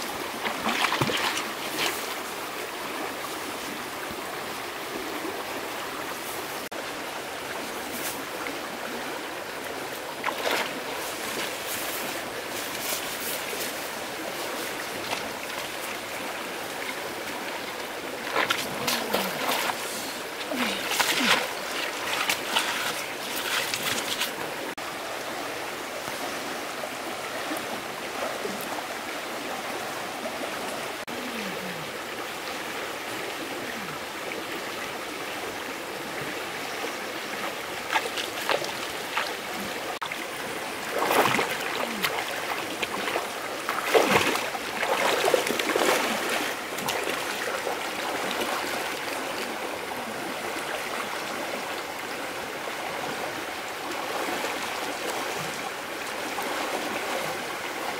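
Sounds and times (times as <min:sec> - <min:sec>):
water splashing: 0:00.0 - 0:03.8, 0:09.6 - 0:24.8, 0:37.3 - 0:49.6
stream running: 0:00.0 - 0:57.9.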